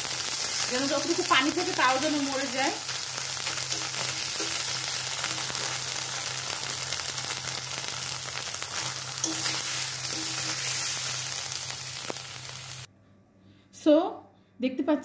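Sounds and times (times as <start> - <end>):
paste sizzling in oil: 0.0 - 12.9.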